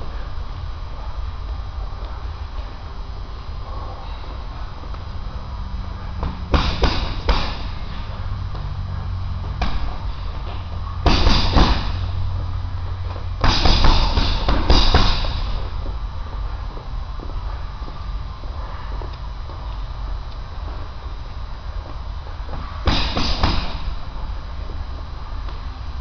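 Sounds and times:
low hum: 0.0s - 26.0s
punches hitting heavy bag: 6.2s - 7.9s, 9.5s - 12.1s, 13.4s - 15.7s, 22.8s - 24.0s.

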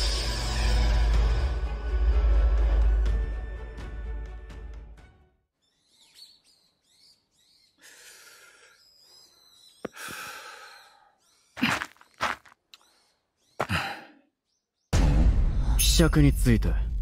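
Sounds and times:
person gasping: 7.8s - 8.8s, 9.9s - 11.0s, 11.6s - 12.0s, 13.6s - 14.3s.

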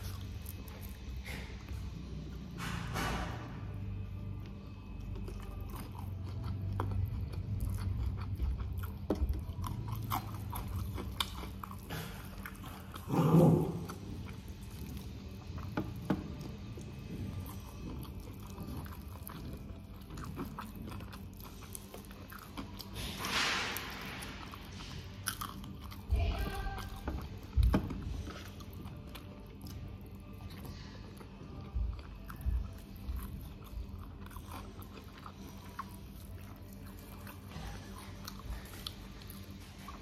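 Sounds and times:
chewing crunchy food: 0.0s - 40.0s.

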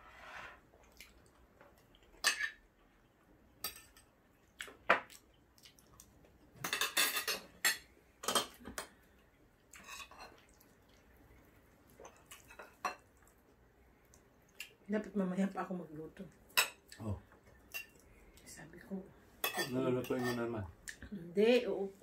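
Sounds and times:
cutlery clinking on plates: 2.2s - 2.6s, 3.6s - 4.1s, 6.6s - 9.0s, 19.4s - 20.6s.

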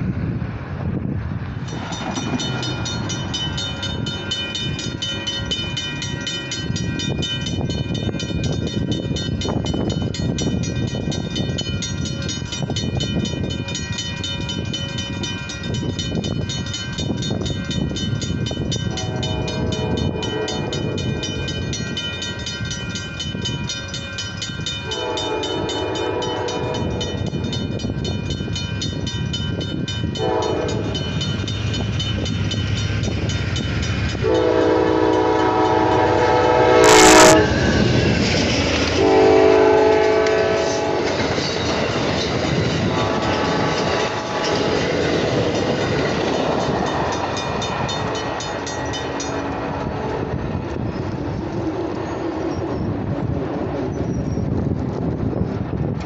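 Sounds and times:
wind noise on microphone: 0.0s - 56.0s
crossing warning bells ringing: 1.6s - 52.8s
train horn blasts: 18.8s - 21.2s, 24.8s - 27.3s, 30.2s - 31.2s, 34.1s - 38.0s, 38.9s - 41.2s, 42.8s - 44.8s, 49.2s - 50.5s.

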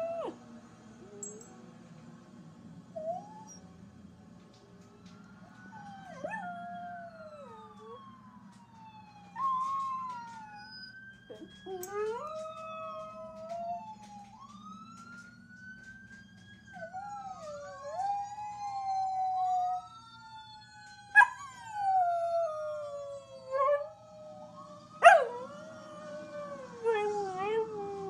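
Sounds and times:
fire truck sirens wailing: 4.5s - 28.0s
dog howling: 25.0s - 28.0s.

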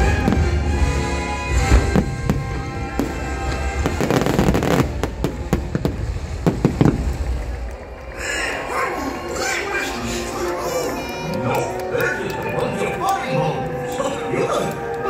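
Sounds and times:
loud show music: 0.0s - 7.2s
fireworks bangs and crackles: 0.0s - 8.2s.

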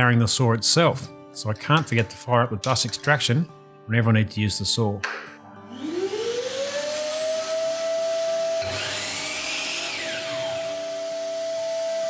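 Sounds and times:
drop saw motor whine: 5.5s - 12.0s
shop vac motor running: 5.6s - 12.0s.

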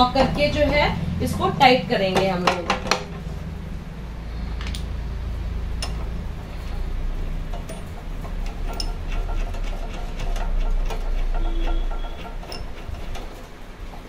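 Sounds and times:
steady low hum: 0.0s - 14.0s
nut threading clicks: 5.8s - 14.0s.

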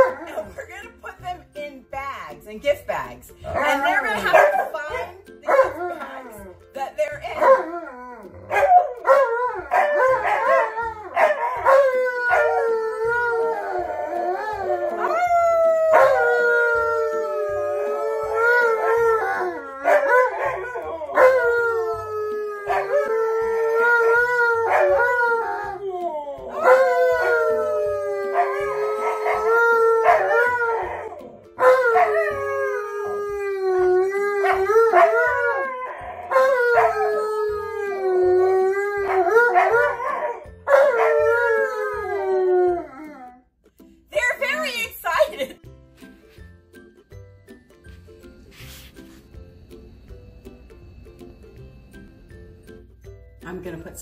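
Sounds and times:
dogs howling: 7.4s - 43.4s.

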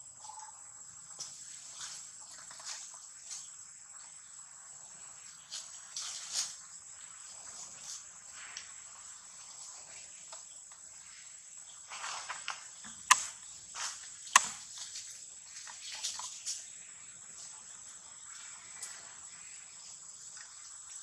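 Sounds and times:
high insect drone: 0.0s - 21.0s
sharp cracks: 13.1s - 13.4s, 14.4s - 14.6s.

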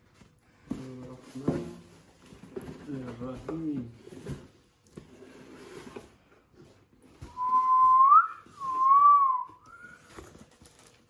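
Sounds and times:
person whistling: 7.3s - 10.1s.

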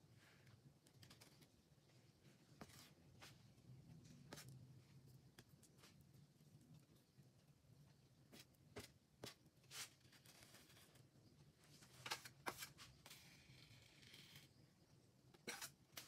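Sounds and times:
cake scraper scraping buttercream: 15.4s - 16.0s.

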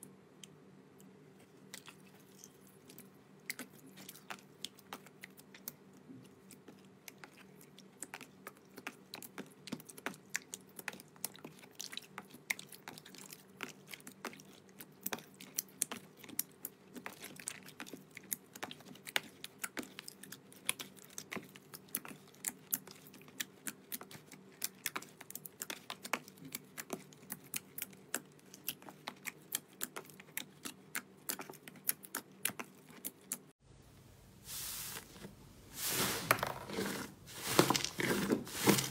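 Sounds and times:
faint steady hum: 0.0s - 38.9s.

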